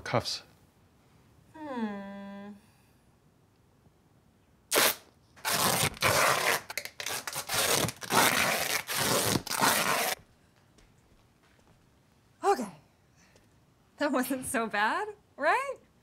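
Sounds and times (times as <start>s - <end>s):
duct tape ripping off roll: 4.7s - 10.2s.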